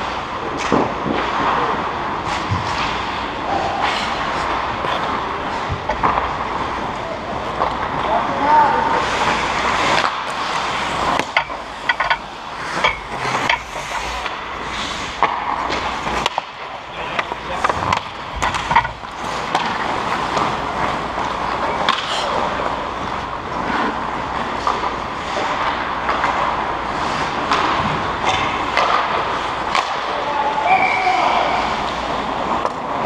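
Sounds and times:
hockey sticks and puck clacking: 0.0 - 33.0
skate blades scraping ice: 8.8 - 16.6.

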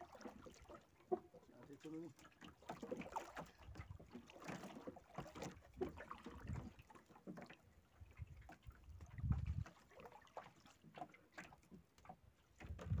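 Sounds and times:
water sloshing against boat hull: 0.0 - 13.0
wind on microphone: 8.1 - 9.7, 12.6 - 13.0.

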